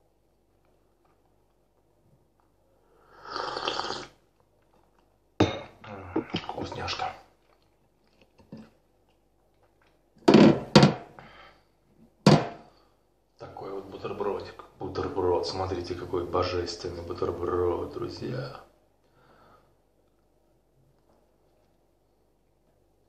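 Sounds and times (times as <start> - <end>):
mouth and handling noises: 0.1 - 2.8, 4.2 - 10.2
slurp of tea: 3.0 - 4.2.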